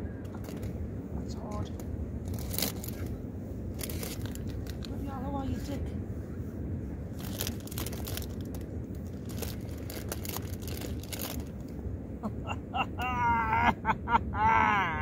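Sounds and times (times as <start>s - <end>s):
foil crisp packet crinkling: 2.3s - 3.1s, 3.7s - 4.9s, 7.2s - 11.6s.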